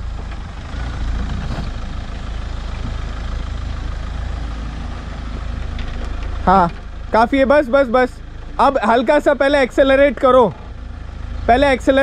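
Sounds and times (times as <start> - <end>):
off-road vehicle engine running: 0.0 - 12.0.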